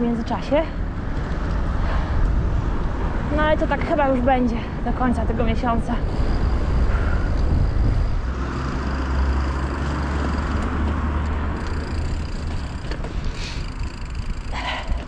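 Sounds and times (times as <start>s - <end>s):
wind rumbling on microphone: 0.0s - 15.0s
bike tyres on paving: 8.2s - 15.0s.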